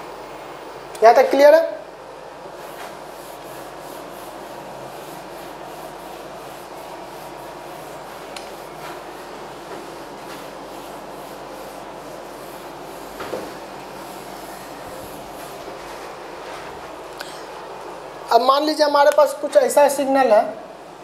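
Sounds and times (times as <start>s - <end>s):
eraser scrubbing whiteboard: 2.5s - 16.9s.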